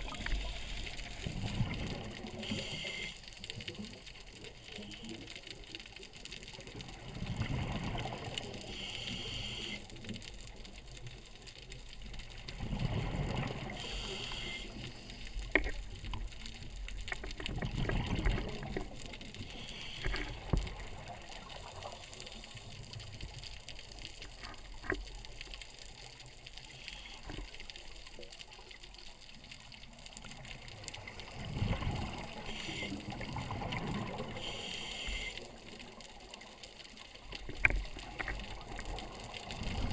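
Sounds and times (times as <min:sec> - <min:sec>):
regulator hiss: 0:00.0 - 0:01.2, 0:02.4 - 0:03.3, 0:08.6 - 0:10.0, 0:13.7 - 0:15.4, 0:19.4 - 0:20.4, 0:32.4 - 0:33.1, 0:34.4 - 0:35.5
faint clicks: 0:00.0 - 0:12.6, 0:13.2 - 0:39.9
diver exhaling bubbles gurgling: 0:17.5 - 0:19.0, 0:31.3 - 0:32.4.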